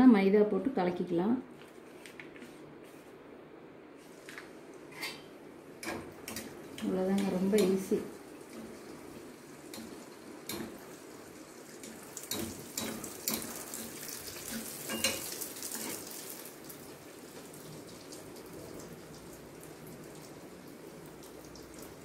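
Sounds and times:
sweet deep-frying in oil: 5.0 - 22.0.

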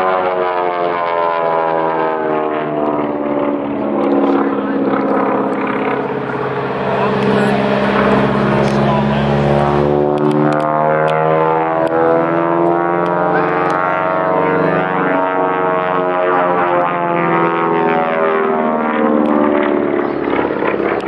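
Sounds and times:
propeller airplane engine drone: 0.0 - 21.0.

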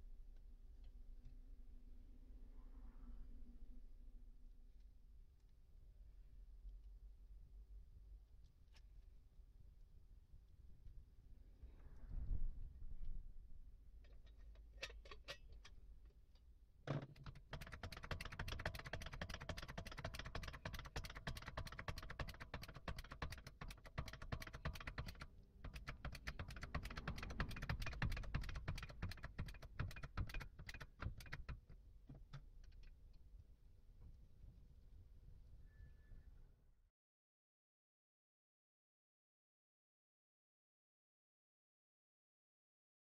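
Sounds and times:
metallic clicking of trolley jack: 14.1 - 15.8, 16.9 - 32.9.

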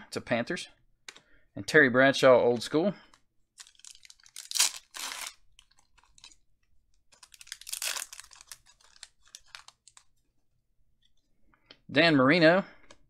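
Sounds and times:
wrapper crinkling and tearing: 3.6 - 6.4, 7.1 - 10.1.

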